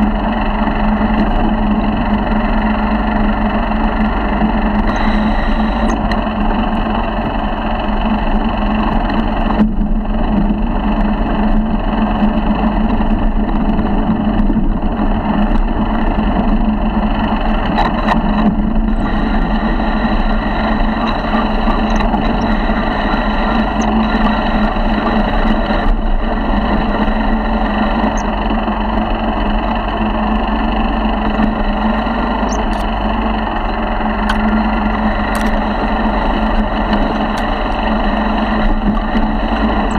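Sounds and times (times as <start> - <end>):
motorized bicycle engine droning: 0.0 - 39.9.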